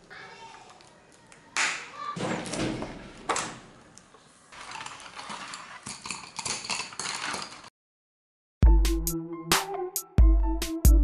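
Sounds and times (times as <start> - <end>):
cardboard and plastic rustling: 4.5 - 6.2.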